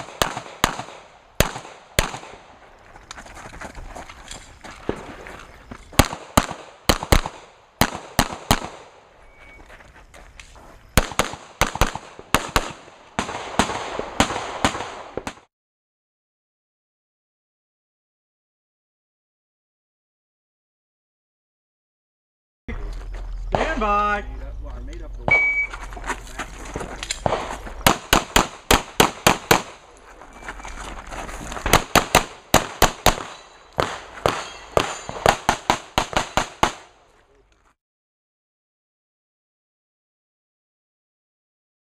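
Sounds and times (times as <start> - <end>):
pistol shots: 0.0 - 2.5, 6.0 - 9.0, 11.0 - 15.5, 27.2 - 29.8, 31.7 - 37.0.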